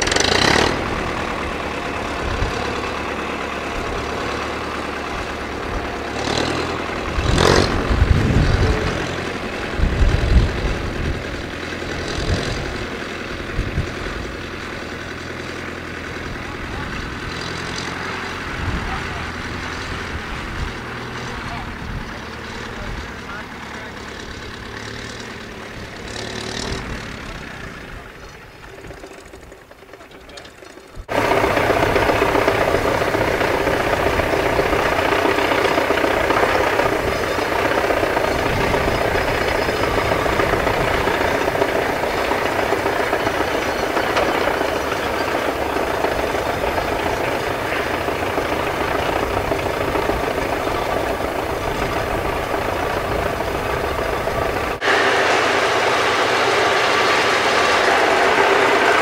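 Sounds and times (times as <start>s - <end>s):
lorry engine running: 0.0s - 59.0s.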